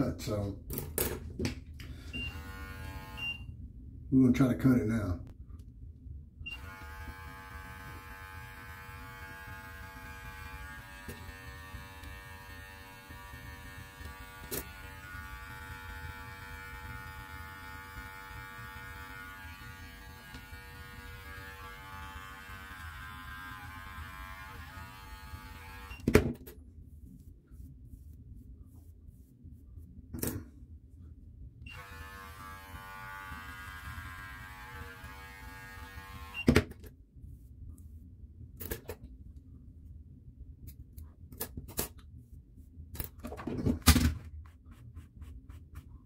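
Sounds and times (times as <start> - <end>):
electric beard clippers humming: 2.2 - 3.4, 6.5 - 26.1, 31.7 - 36.5.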